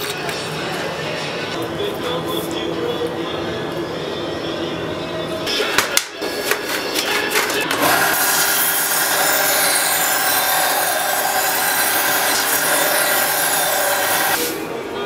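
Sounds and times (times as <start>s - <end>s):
belt sander grinding steel: 7.7s - 14.4s
sander motor hum: 7.7s - 14.4s.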